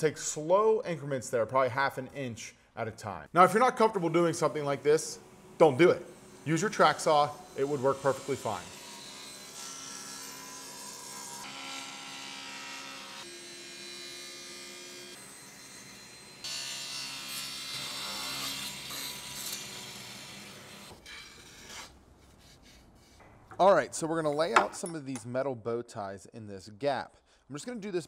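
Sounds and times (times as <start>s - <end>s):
table saw cutting wood: 4.0s - 23.2s.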